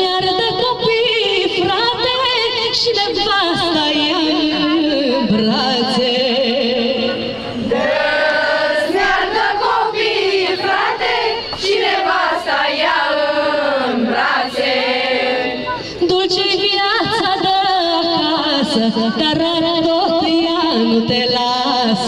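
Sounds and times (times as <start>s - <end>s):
folk song with heavy vibrato: 4.6s - 17.6s.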